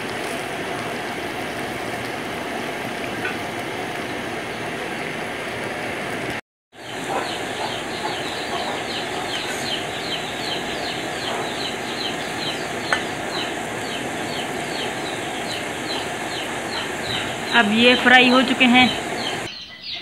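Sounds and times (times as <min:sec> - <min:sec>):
food deep-frying sizzle: 0:00.0 - 0:19.6
bird chirping: 0:06.8 - 0:20.0.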